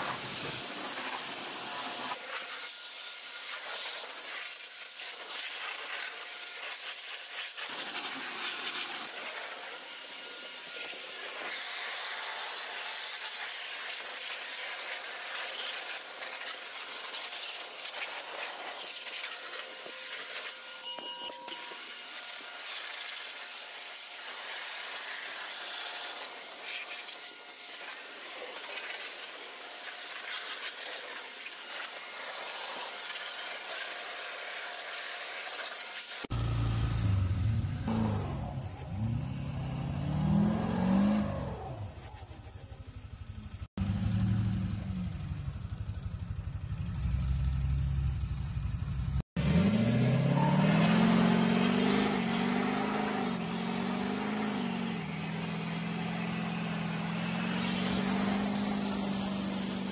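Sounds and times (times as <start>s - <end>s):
pressure washer jet hissing: 0.0s - 36.3s.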